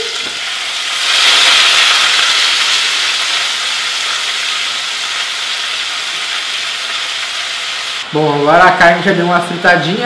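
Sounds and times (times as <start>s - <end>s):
meat sizzling in hot oil: 0.0s - 10.0s.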